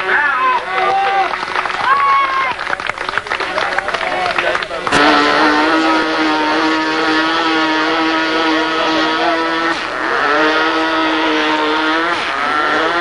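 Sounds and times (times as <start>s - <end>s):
model engine high-pitched whine: 4.8s - 13.0s.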